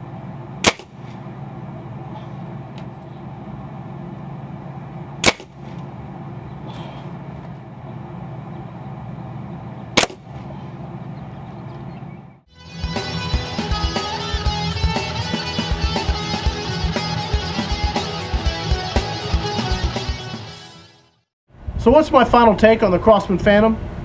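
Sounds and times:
steady low hum: 0.0 - 20.1
air rifle shots: 0.6 - 1.2, 5.2 - 5.9, 9.9 - 10.6.

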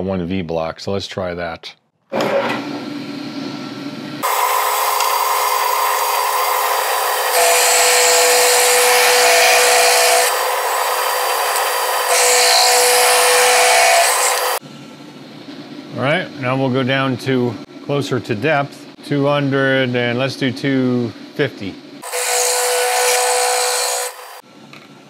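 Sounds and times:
milling machine grinding metal: 4.2 - 14.6, 22.0 - 24.4.

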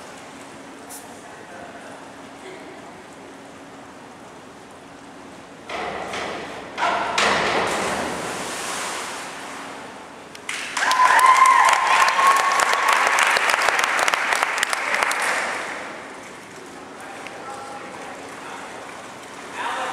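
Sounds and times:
people clapping and cheering: 10.4 - 16.1.

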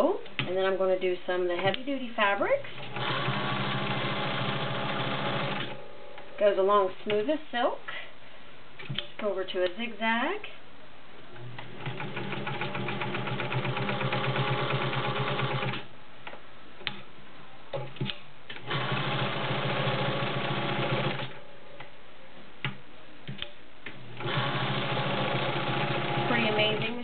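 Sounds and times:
sewing machine stitching: 2.8 - 5.8, 11.8 - 15.8, 18.6 - 21.4, 24.2 - 27.0.

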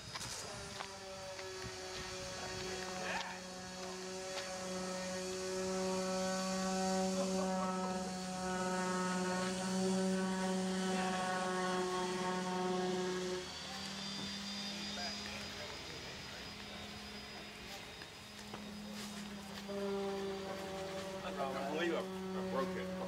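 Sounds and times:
truck engine droning: 0.0 - 23.0.

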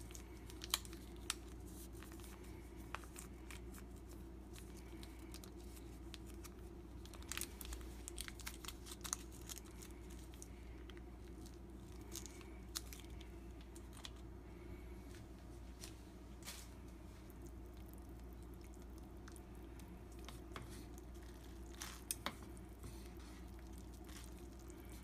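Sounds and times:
plastic sachet crinkling: 0.0 - 14.2
low steady hum: 0.0 - 25.0.

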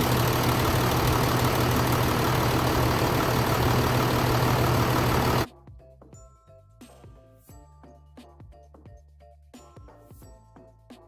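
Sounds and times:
diesel engine idling: 0.0 - 5.5.

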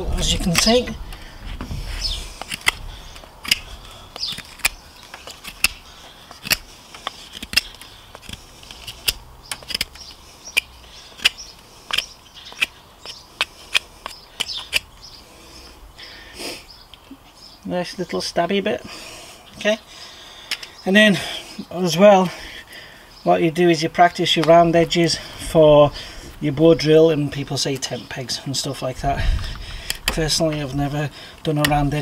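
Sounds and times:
knife cutting clicks on wood: 3.4 - 4.8, 6.4 - 12.7.

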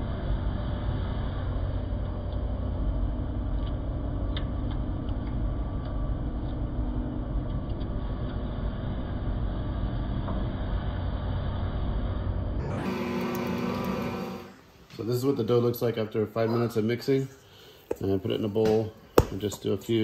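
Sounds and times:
stand mixer motor hum: 12.6 - 14.6.

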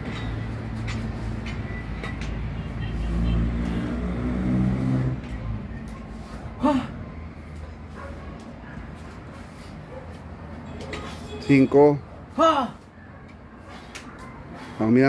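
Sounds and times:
vehicle engine rumbling: 0.0 - 11.4.

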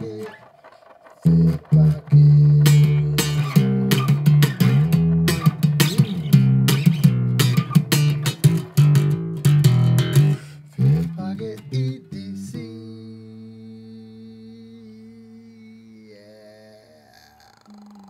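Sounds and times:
plucked guitar: 0.0 - 14.5
bass line: 1.2 - 12.5.

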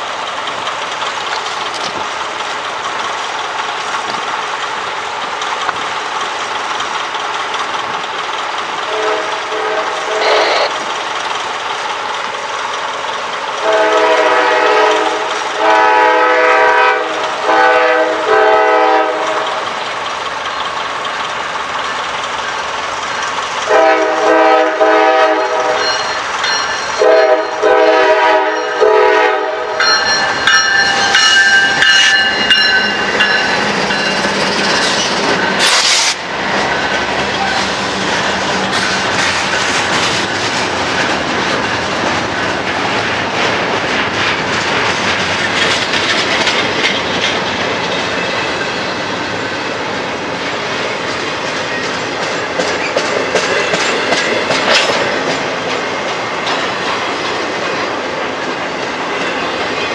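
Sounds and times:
train rumbling: 0.0 - 59.9
locomotive air horn blasts: 8.9 - 10.7, 13.6 - 19.6, 23.7 - 26.0, 27.0 - 29.9.

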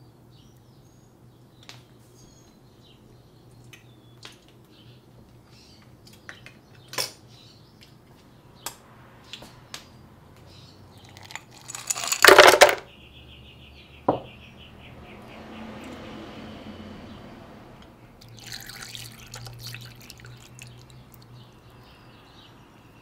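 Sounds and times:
ice cubes clattering into blender: 11.1 - 12.8.

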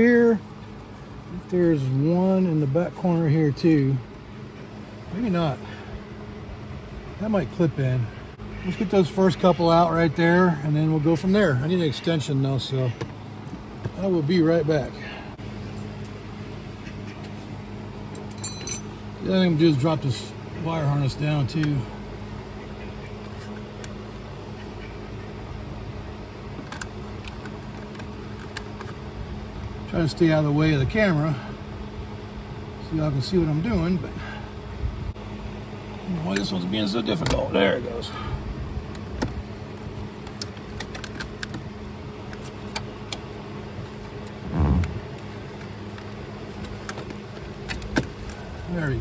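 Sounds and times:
steady mechanical hum: 0.0 - 49.0
low buzzy squawk: 8.1 - 10.0, 16.7 - 17.5, 24.4 - 25.4, 44.4 - 45.1.

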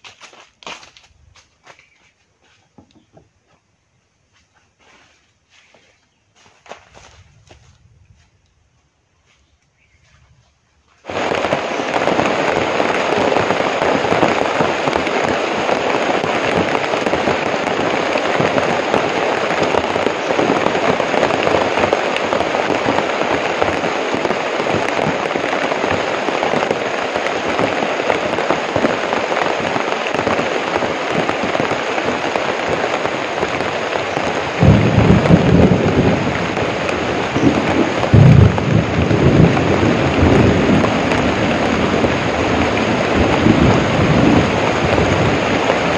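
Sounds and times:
heavy rain: 11.0 - 45.9.

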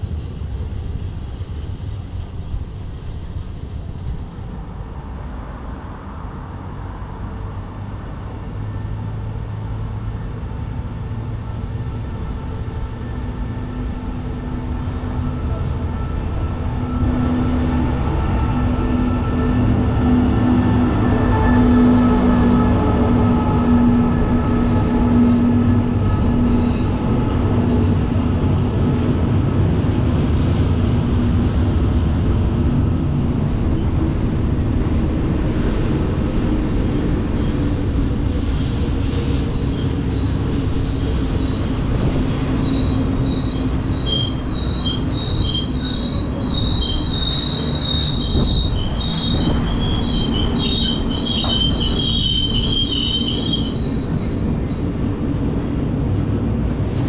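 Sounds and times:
train wheels rumbling on rails: 0.0 - 57.0
metallic wheel squeals: 23.3 - 27.6, 42.3 - 54.8.

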